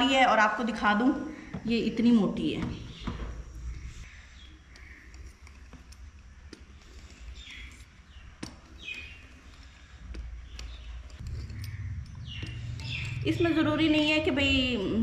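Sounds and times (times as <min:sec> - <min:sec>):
steady low hum: 0:00.0 - 0:15.0
bird chirps: 0:06.9 - 0:14.2.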